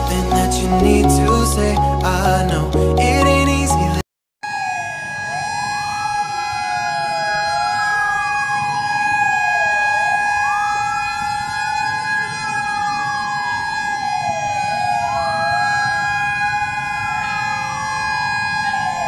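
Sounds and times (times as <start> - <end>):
steady high tones: 0.0 - 4.0
emergency siren wailing: 0.0 - 19.0.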